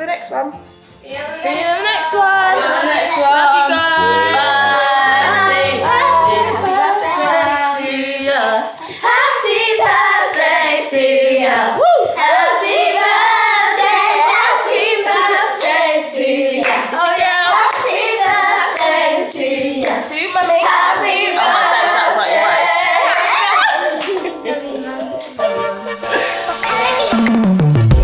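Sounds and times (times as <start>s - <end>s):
several voices singing: 1.1s - 27.2s
hand clapping: 17.7s - 18.1s.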